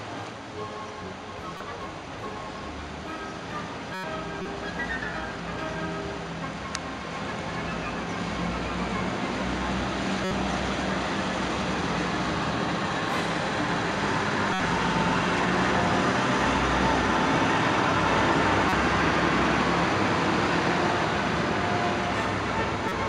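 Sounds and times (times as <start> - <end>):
bus engine passing: 0.0 - 23.0
heavy rain on street: 0.0 - 23.0.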